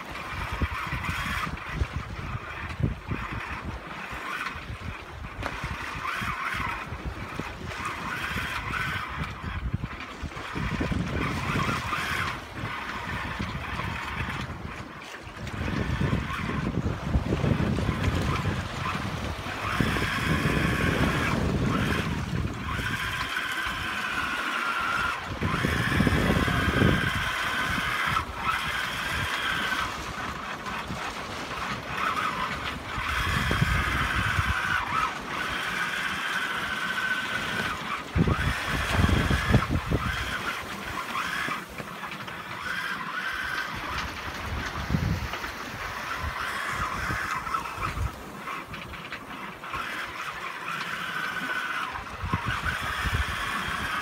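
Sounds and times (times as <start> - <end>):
rush of the sea: 0.0 - 54.0
wind buffeting microphone: 0.0 - 54.0
thin wavering whine: 4.2 - 31.1.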